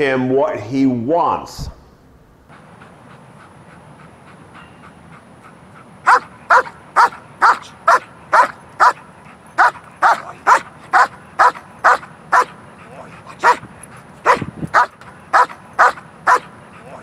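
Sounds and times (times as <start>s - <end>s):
dog barking: 6.1s - 9.0s, 9.6s - 12.5s, 13.4s - 13.6s, 14.2s - 16.5s.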